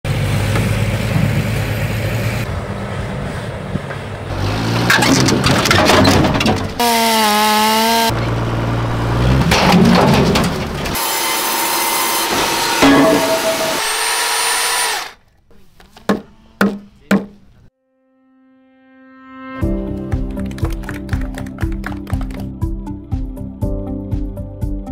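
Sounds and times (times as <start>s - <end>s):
heavy truck engine running: 0.1s - 11.6s
machine and power tool noise: 6.7s - 8.2s, 10.8s - 15.2s
tool knocking on wooden beam: 16.1s - 17.4s.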